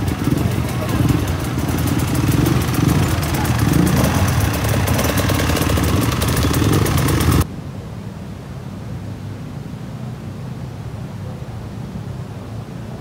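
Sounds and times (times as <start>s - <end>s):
dirt bike engines idling: 0.0s - 7.4s.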